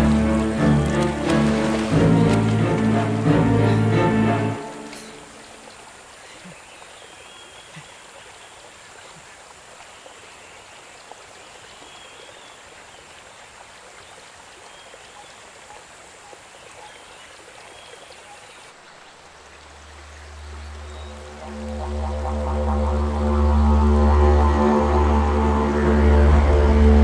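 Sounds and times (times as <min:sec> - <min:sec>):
low droning music tone: 0:00.0 - 0:05.6, 0:19.9 - 0:27.0
stream rushing over rocks: 0:00.0 - 0:22.3.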